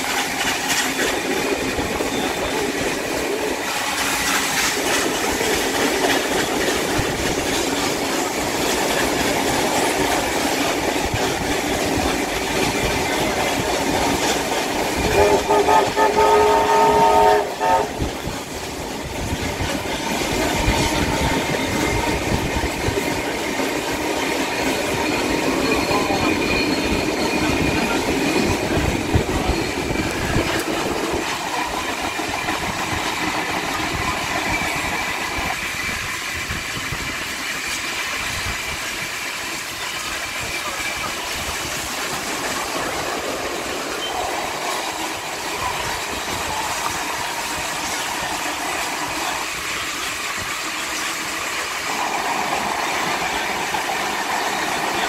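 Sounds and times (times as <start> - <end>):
carriages rumbling on the track: 0.0 - 55.0
steam locomotive whistle: 15.0 - 18.1.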